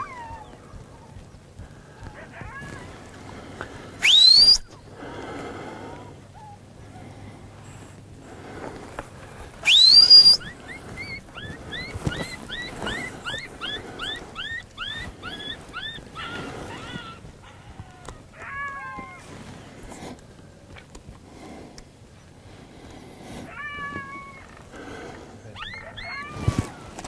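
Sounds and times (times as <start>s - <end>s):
sharp rising whistle: 4.0s - 4.7s, 9.6s - 10.5s
short high chirping calls: 4.0s - 4.7s, 9.6s - 16.4s.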